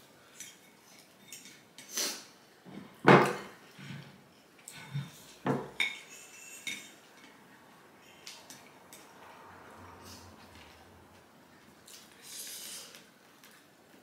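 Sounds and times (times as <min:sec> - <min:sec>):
utensils clinking against dishes: 0:00.3 - 0:01.9, 0:04.6 - 0:07.4.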